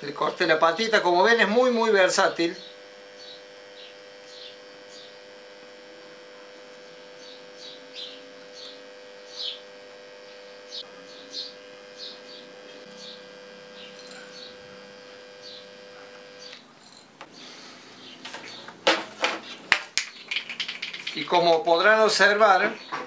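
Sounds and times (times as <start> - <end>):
transformer humming: 1.4 - 21.3
flux crackling and sizzling: 18.2 - 22.4.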